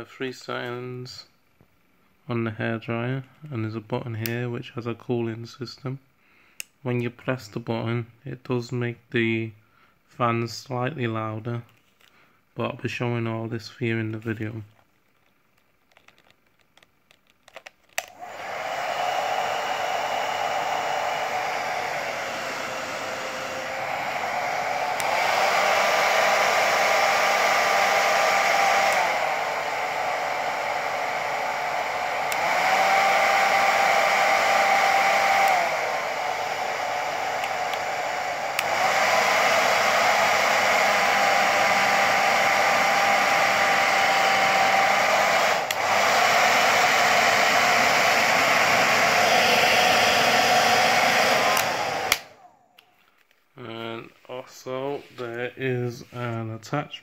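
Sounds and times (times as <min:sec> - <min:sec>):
pet hair dryer blowing: 0:18.0 - 0:52.8.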